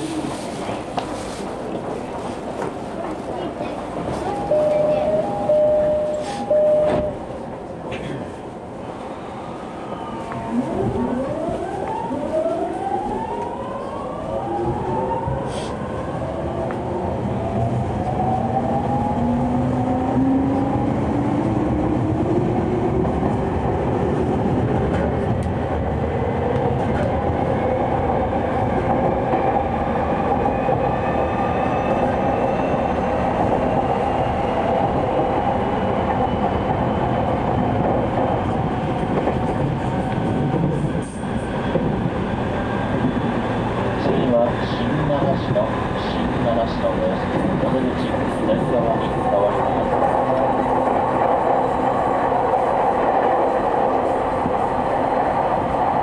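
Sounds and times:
wheel and rail rumble: 16.5 - 56.0.

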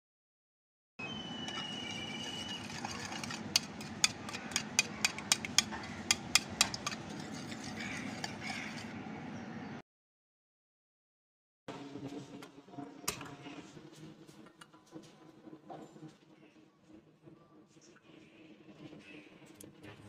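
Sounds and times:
whisk beating in a ceramic bowl: 1.5 - 8.9.

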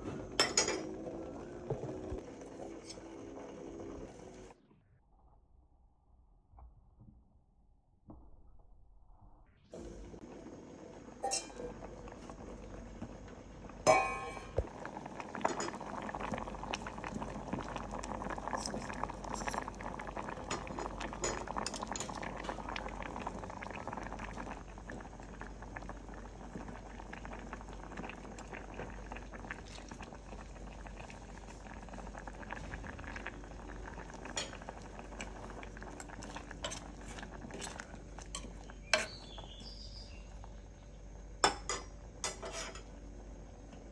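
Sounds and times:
broth boiling in a pot: 0.0 - 5.3, 9.7 - 43.9
ladle clinking and scraping pot: 11.2 - 11.8, 13.9 - 14.6, 36.0 - 39.3, 41.6 - 42.9.

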